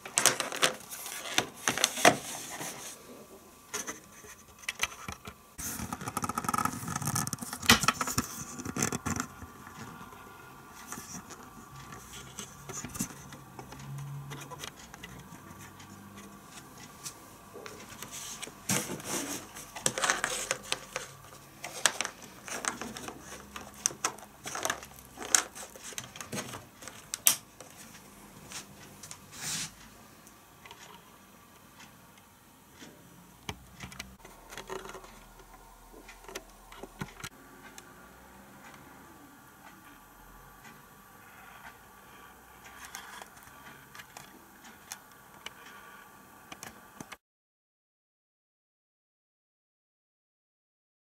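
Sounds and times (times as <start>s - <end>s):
cable handling clicks and scrapes: 0.0s - 3.0s, 3.7s - 29.8s, 32.8s - 37.8s, 42.6s - 45.7s.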